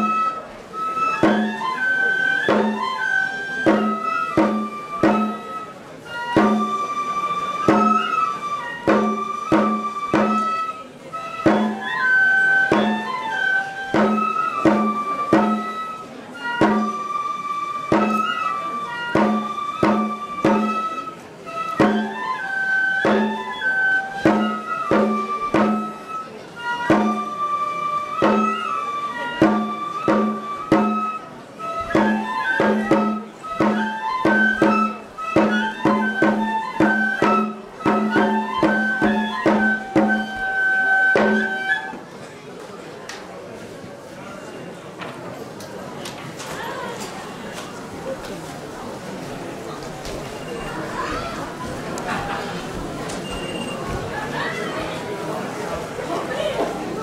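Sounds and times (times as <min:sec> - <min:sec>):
flute melody of held notes: 0:00.0 - 0:42.0
regular drum beats: 0:01.2 - 0:01.8, 0:02.4 - 0:05.6, 0:06.3 - 0:07.0, 0:07.6 - 0:10.6, 0:11.4 - 0:15.8, 0:16.6 - 0:17.0, 0:17.9 - 0:21.0, 0:21.7 - 0:26.2, 0:26.8 - 0:27.4, 0:28.1 - 0:28.7, 0:29.4 - 0:31.1, 0:31.8 - 0:41.6.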